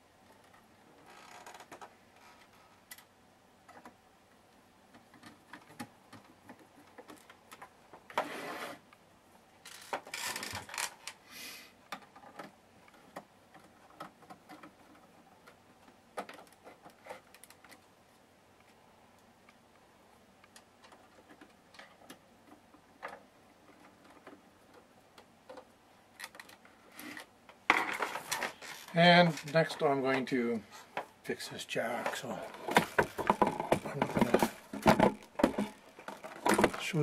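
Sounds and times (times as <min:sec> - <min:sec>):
short scraping rustles: 0:08.2 - 0:08.8.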